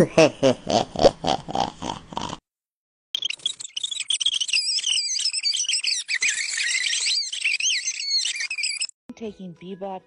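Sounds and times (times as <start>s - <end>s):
person snoring: 1.4s - 2.4s
high-pitched squeaks and chirps: 3.2s - 9.0s.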